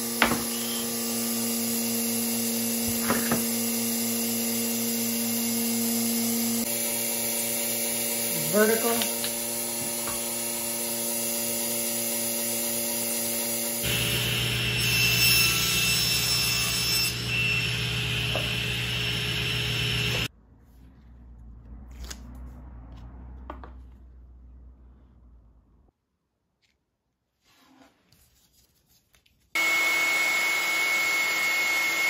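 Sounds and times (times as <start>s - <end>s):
vacuum pump humming: 17.1s - 20.3s, 29.6s - 32.0s.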